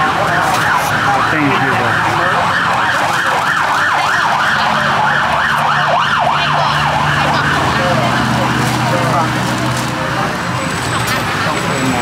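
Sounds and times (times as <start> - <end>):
electronic siren yelping: 0.2 - 8.1.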